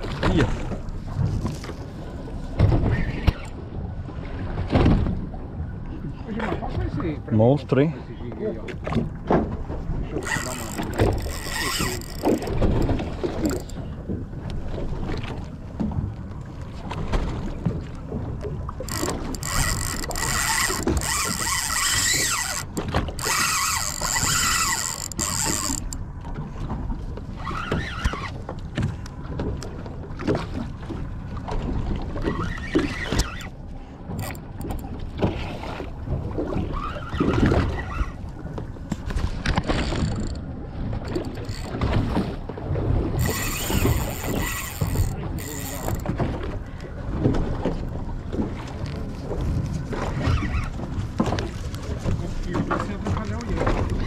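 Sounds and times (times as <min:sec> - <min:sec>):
water noise: 0:00.0 - 0:54.0
wind: 0:00.0 - 0:54.0
fishing reel buzzing: 0:10.2 - 0:13.8, 0:18.8 - 0:26.0, 0:32.5 - 0:33.5, 0:34.2 - 0:34.9, 0:39.6 - 0:40.4, 0:41.0 - 0:42.0, 0:43.2 - 0:46.1.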